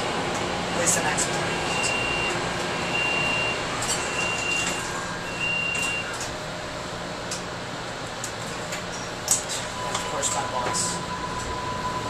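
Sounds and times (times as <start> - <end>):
light rail car hum: 0.0 - 12.0
high electronic beep: 2.9 - 6.1.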